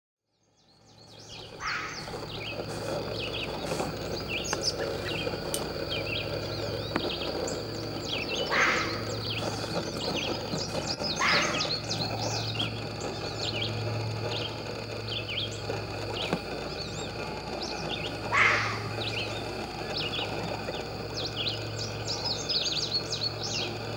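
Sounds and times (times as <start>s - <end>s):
small birds chirping: 0.3s - 23.9s
fox barking: 1.5s - 2.6s, 7.3s - 12.4s, 18.1s - 19.2s.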